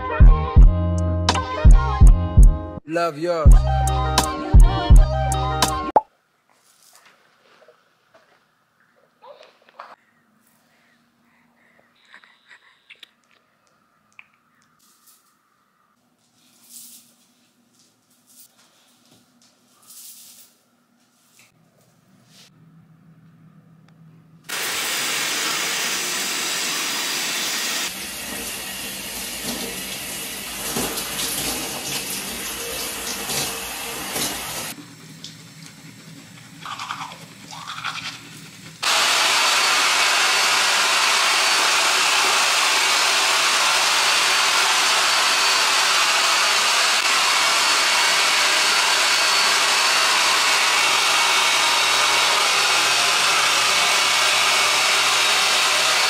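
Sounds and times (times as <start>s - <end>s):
hair dryer blowing: 24.5s - 34.8s, 38.8s - 56.0s
toothbrush scrubbing: 36.0s - 38.3s.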